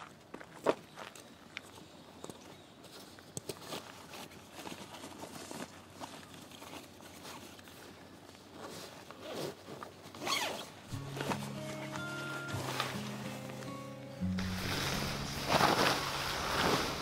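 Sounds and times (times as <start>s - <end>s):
fabric rustling: 3.6s - 17.0s
zipper being pulled open: 9.1s - 11.4s
background music: 10.9s - 17.0s.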